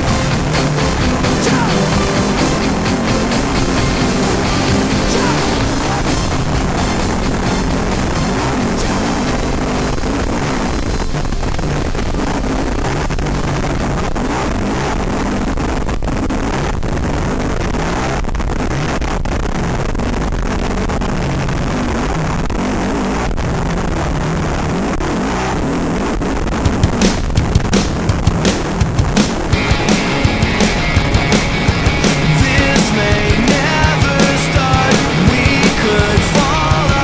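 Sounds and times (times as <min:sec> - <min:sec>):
vehicle engine running hard: 0:00.0 - 0:37.0
knocks and rattles: 0:26.6 - 0:36.6.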